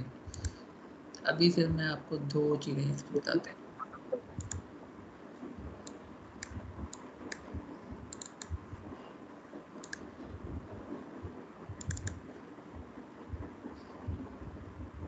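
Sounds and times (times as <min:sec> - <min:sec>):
low background hiss: 0:00.0 - 0:15.0
computer mouse clicking: 0:00.3 - 0:00.6, 0:04.4 - 0:04.6, 0:08.1 - 0:08.6, 0:09.8 - 0:10.1, 0:11.8 - 0:12.2.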